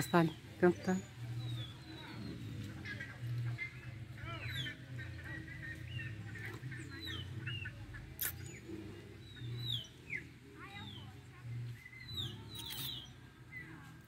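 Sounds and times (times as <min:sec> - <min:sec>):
small birds chirping and whistling: 0:00.0 - 0:14.0
sharp click: 0:08.2 - 0:08.4.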